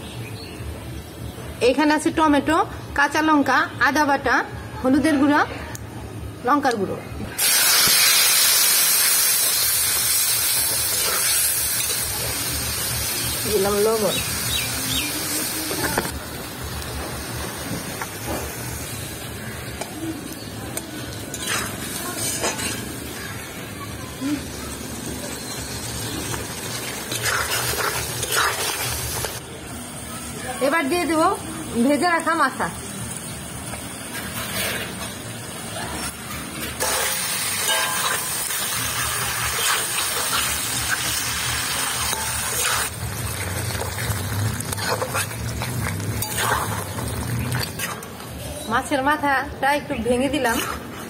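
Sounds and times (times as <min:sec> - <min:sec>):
spices sizzling in a metal pan: 0:07.4 - 0:51.0
metal spatula scraping: 0:21.3 - 0:23.0, 0:27.1 - 0:29.4, 0:44.7 - 0:48.2, 0:50.2 - 0:51.0.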